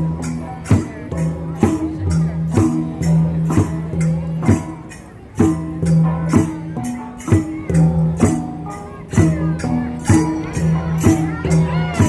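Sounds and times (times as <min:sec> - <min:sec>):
gong ensemble playing: 0:00.0 - 0:12.0.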